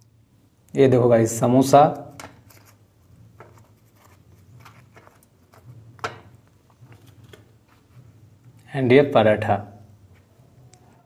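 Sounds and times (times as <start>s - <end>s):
handling rustles and clicks: 2.2s - 2.8s, 3.4s - 8.6s.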